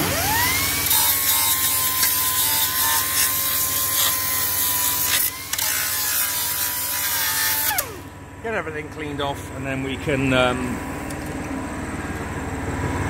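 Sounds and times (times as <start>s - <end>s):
belt sander grinding steel: 0.0s - 8.1s.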